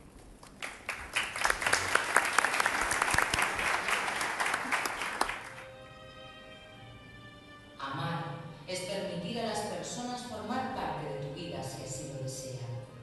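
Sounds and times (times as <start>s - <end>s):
audience applauding: 0.4s - 5.6s
soft music with held chord: 5.3s - 13.0s.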